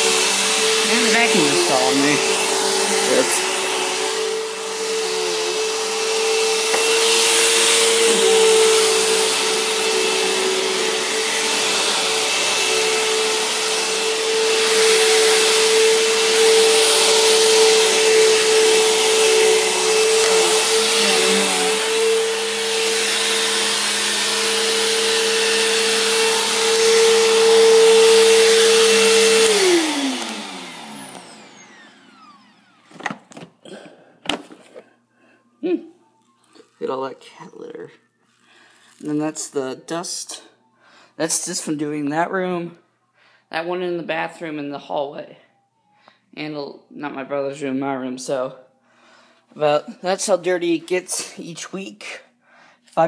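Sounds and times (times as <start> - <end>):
vacuum motor spinning down: 0.0 - 33.2
upright vacuum cleaner running: 0.0 - 33.6.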